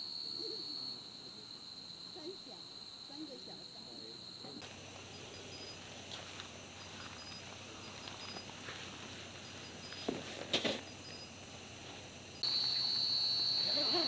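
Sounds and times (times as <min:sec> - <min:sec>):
insect chirping in pulses: 0:00.0 - 0:14.0
insect high-pitched trill: 0:00.0 - 0:14.0
knocks and rustling: 0:09.9 - 0:10.9.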